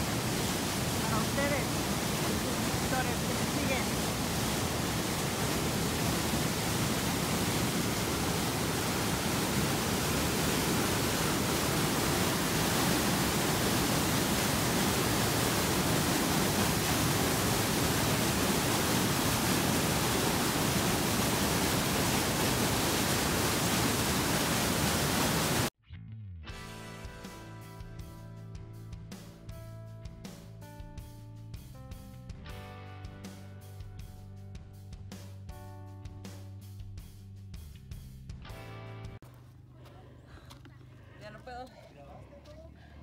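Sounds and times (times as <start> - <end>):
water rushing down rocks: 0.0 - 25.7.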